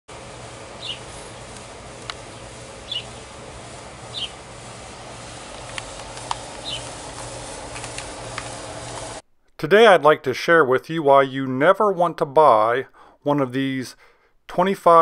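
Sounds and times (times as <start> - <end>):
steady low hum: 0.1 - 9.4
sharp clicks: 1.5 - 2.3, 5.5 - 9.1.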